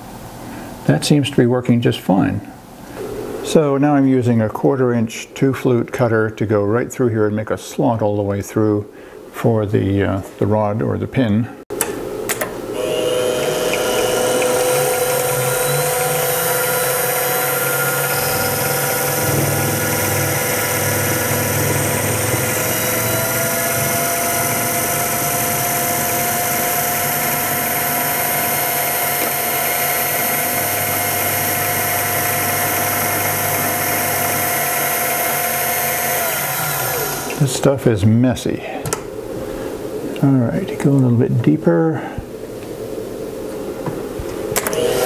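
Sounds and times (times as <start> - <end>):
end mill cutting plastic: 11.8 - 37.5, 44.5 - 45.0
mill spindle motor whining: 11.8 - 37.6, 44.5 - 45.0.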